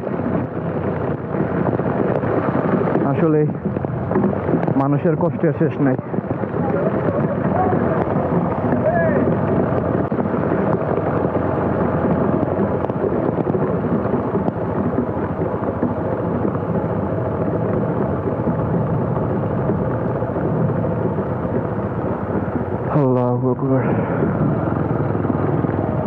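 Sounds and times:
heavy rain: 0:00.0 - 0:20.7
wind rushing: 0:00.0 - 0:23.0
motorcycle engine running: 0:00.0 - 0:26.0.

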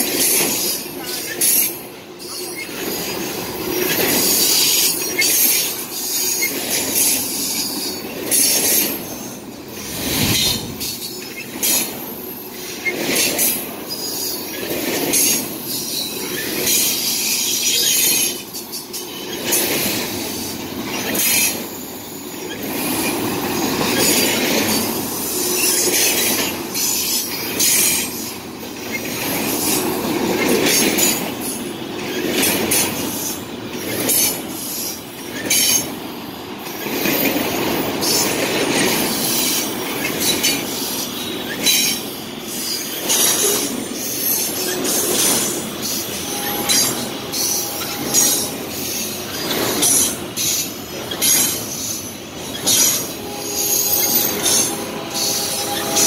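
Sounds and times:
train wheels rumbling on rail: 0:00.0 - 0:56.0
high-pitched wheel squeals: 0:39.2 - 0:56.0.

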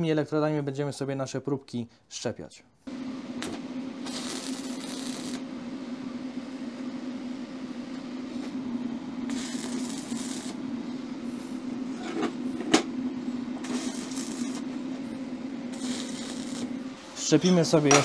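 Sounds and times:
steady hum: 0:02.9 - 0:18.0
welding arc crackle: 0:03.4 - 0:05.5, 0:09.2 - 0:10.6, 0:13.6 - 0:14.8, 0:15.6 - 0:17.2.

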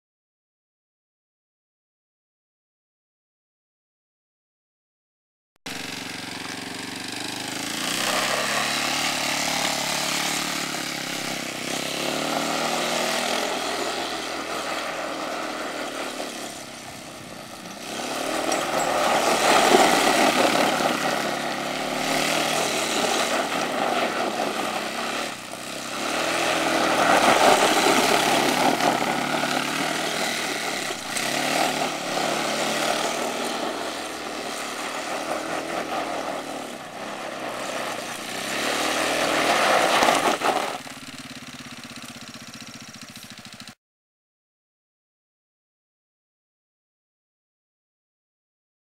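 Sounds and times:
go-kart engine revving: 0:05.7 - 0:43.8.

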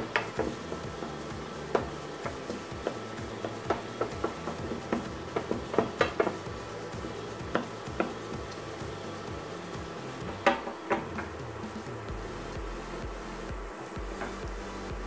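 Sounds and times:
vegetables sizzling: 0:00.0 - 0:15.0.

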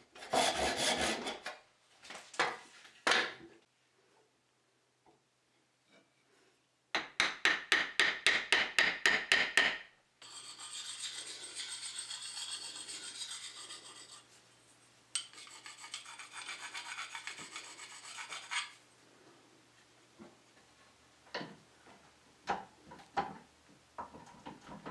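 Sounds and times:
quick rasping strokes on steel: 0:10.2 - 0:14.3, 0:15.2 - 0:18.8
scraping rub against steel: 0:10.2 - 0:18.8.

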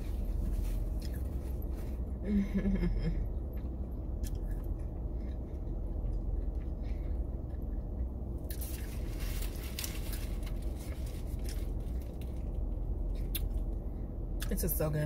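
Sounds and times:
steady low hum: 0:00.0 - 0:15.0
crunchy chewing: 0:03.5 - 0:13.7.

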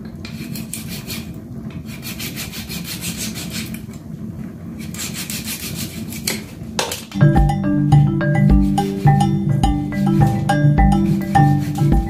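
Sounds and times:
knife sawing through chicken leg: 0:00.4 - 0:03.8, 0:04.8 - 0:06.3.

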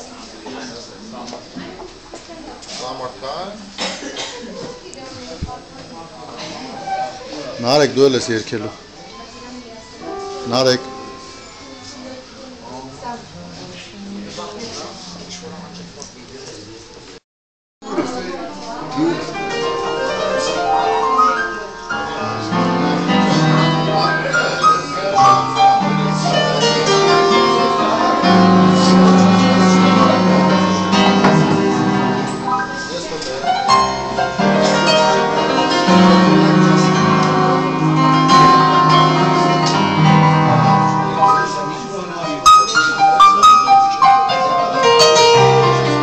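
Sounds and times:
electronic keyboard melody: 0:18.2 - 0:46.0.

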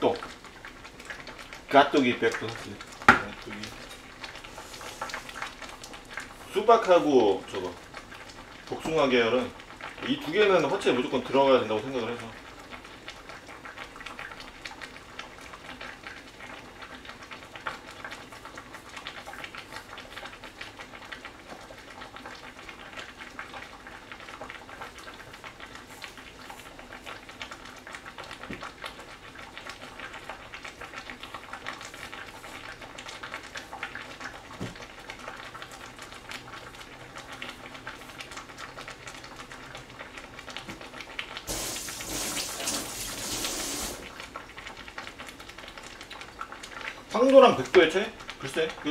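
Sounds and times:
pot boiling and bubbling: 0:00.0 - 0:48.9
kitchen tap running: 0:01.6 - 0:07.8, 0:08.7 - 0:12.2, 0:40.6 - 0:44.7.

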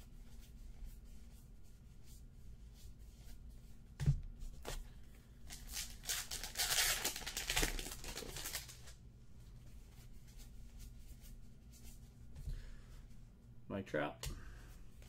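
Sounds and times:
plastic wrapper crinkling and tearing: 0:05.5 - 0:09.0.

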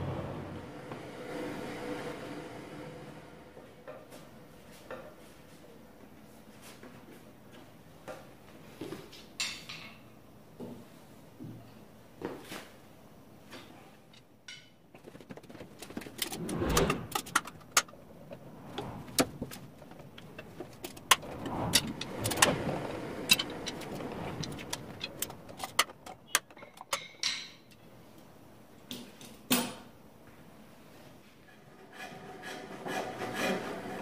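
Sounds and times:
wooden spindles clattering: 0:14.9 - 0:27.4
wood rubbing: 0:15.0 - 0:26.3.

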